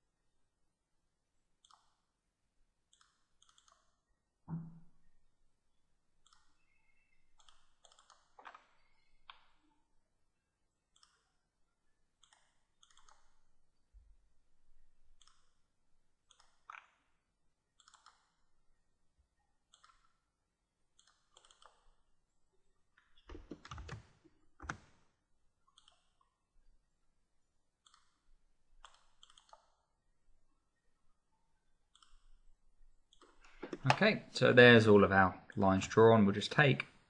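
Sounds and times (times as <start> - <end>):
computer mouse clicks: 1.6 - 2.1, 2.9 - 4.0, 6.2 - 9.6, 10.9 - 11.4, 12.2 - 13.4, 15.1 - 15.6, 16.2 - 17.1, 17.7 - 18.5, 19.7 - 20.2, 20.9 - 22.0, 25.7 - 26.4, 27.8 - 28.2, 28.8 - 29.9, 31.9 - 32.4.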